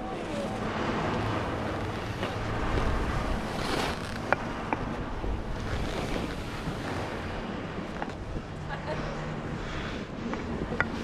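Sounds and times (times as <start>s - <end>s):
wind on microphone: 0.0s - 11.0s
skis scraping over snow: 1.4s - 8.2s.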